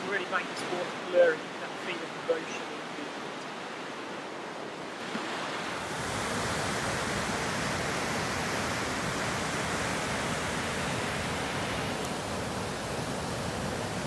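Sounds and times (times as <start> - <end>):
waterfall rushing over rocks: 5.0 - 14.0.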